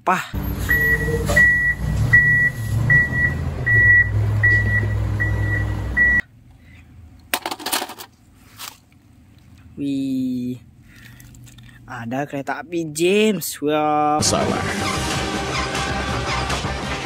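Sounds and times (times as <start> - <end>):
reversing alarm beeping: 0.4 - 6.2
diesel engine rumble: 0.4 - 7.2.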